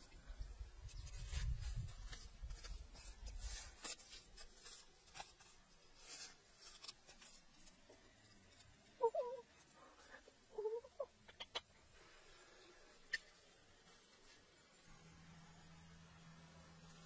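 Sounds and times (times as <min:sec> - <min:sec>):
soil scratching and scraping: 0:00.8 - 0:09.6.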